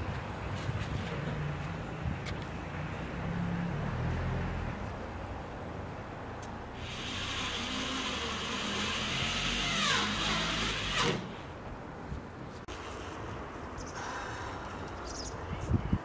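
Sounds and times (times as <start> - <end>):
vehicle passing by: 0.3 - 8.3.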